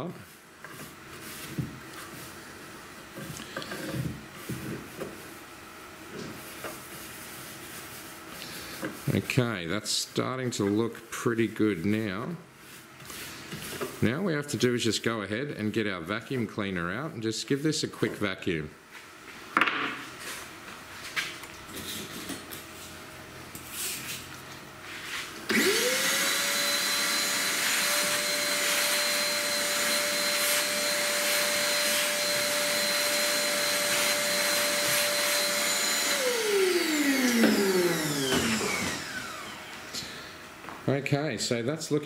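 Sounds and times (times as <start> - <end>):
vacuum cleaner motor whine: 25.4 - 40.5.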